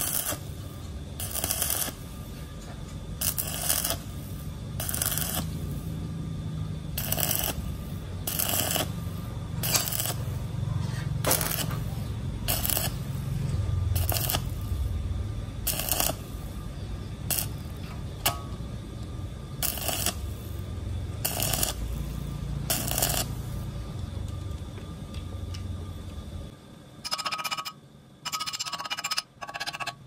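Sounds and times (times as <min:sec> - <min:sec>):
welding arc crackles: 0:00.0 - 0:02.5, 0:03.1 - 0:06.1, 0:06.9 - 0:18.4, 0:19.0 - 0:24.6
low steady hum: 0:00.0 - 0:30.0.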